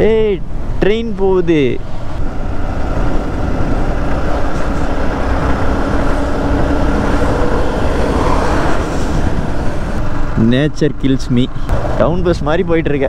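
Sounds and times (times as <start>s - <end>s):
wind rumble on microphone: 0.2s - 12.7s
motorcycle engine cruising: 2.0s - 10.5s.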